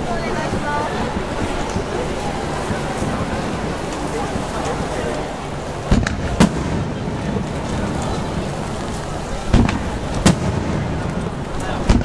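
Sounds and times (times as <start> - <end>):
rain hiss: 0.0 - 12.0
firework booms: 5.8 - 12.0.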